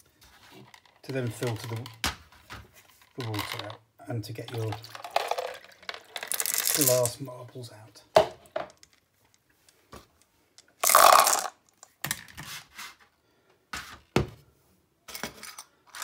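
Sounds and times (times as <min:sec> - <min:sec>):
glass marbles clattering into bowl: 0:04.5 - 0:07.2, 0:10.8 - 0:11.6.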